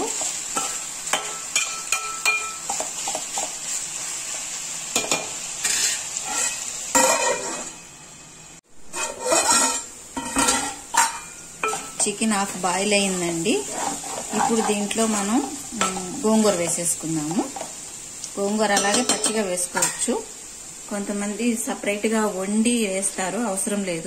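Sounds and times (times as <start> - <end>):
chicken sizzling in oil: 0.0 - 24.0
metal spatula scraping a pan: 5.0 - 7.8, 8.8 - 12.1, 13.5 - 16.7.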